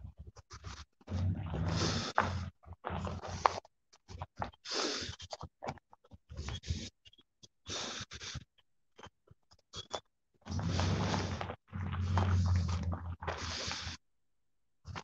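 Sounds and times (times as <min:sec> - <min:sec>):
person breathing: 0:00.6 - 0:03.6, 0:07.7 - 0:08.5, 0:10.5 - 0:14.0
rustling on phone microphone: 0:10.5 - 0:14.0.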